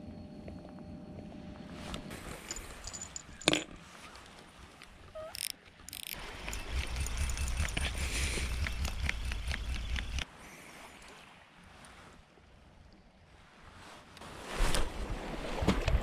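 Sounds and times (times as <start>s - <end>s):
fishing reel whirring and clicking: 5.3s - 10.2s.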